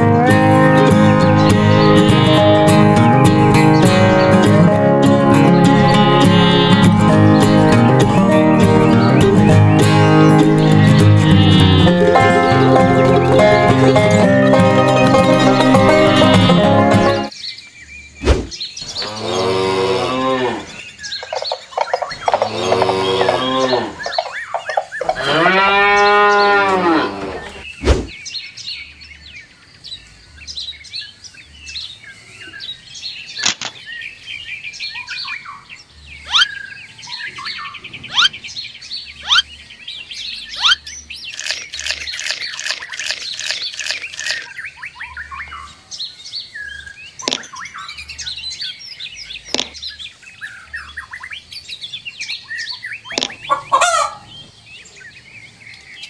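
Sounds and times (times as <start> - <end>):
cow mooing: 0.0 - 2.9, 5.7 - 7.2, 10.6 - 13.8, 14.8 - 17.3, 19.0 - 20.8, 22.2 - 24.1, 25.0 - 27.6
birds chirping: 0.0 - 56.0.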